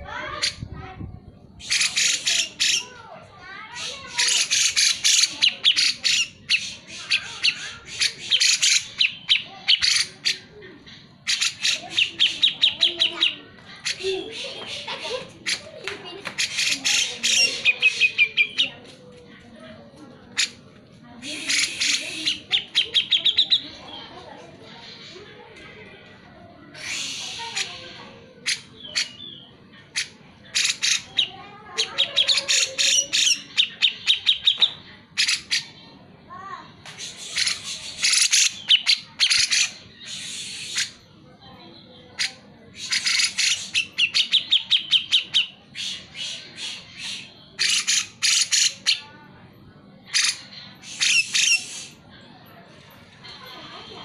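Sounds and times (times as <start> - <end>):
bird harsh scratchy calls: 1.6 - 2.9, 3.6 - 10.5, 11.2 - 18.8, 20.3 - 20.6, 21.2 - 23.8, 26.7 - 35.8, 36.8 - 41.1, 42.2 - 49.0, 50.1 - 52.0.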